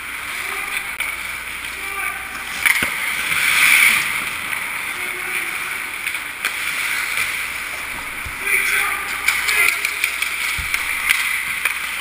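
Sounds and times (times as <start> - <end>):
skate blades scraping ice: 5.1 - 12.0.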